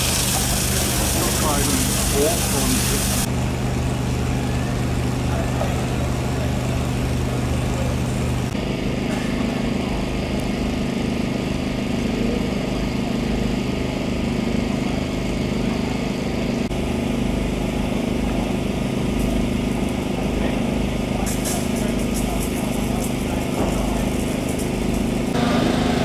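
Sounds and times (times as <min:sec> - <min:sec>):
drone of running engines: 0:00.0 - 0:26.0.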